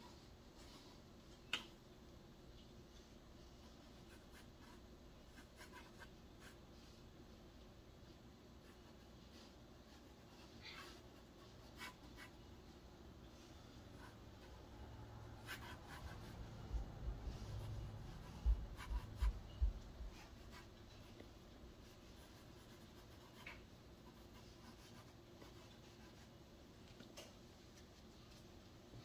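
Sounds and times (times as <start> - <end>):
drawing tool scratching paper: 15.4 - 16.5.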